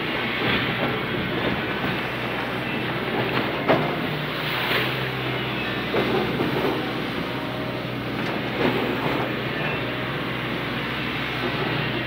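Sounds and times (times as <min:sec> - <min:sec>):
engine drone: 0:00.0 - 0:12.0
water rushing: 0:01.8 - 0:08.8.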